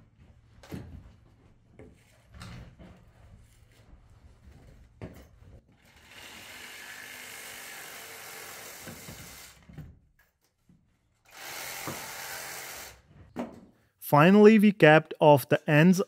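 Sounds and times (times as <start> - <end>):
steady mechanical tool noise: 11.3 - 13.1.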